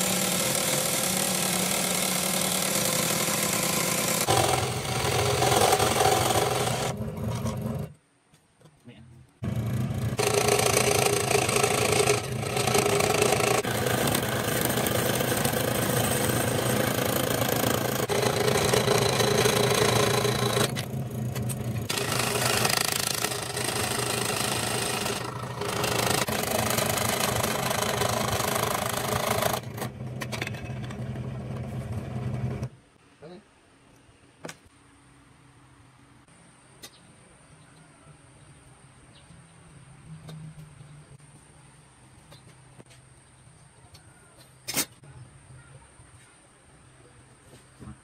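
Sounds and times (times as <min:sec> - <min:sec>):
saw blade rasping through wood: 0:00.0 - 0:07.9, 0:09.8 - 0:30.0
scroll saw motor hum: 0:00.0 - 0:07.9, 0:09.4 - 0:30.0.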